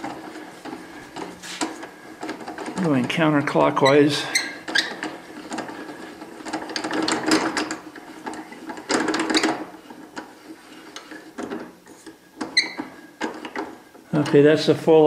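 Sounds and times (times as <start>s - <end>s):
short squeak: 3.8s - 5.0s, 12.5s - 13.0s.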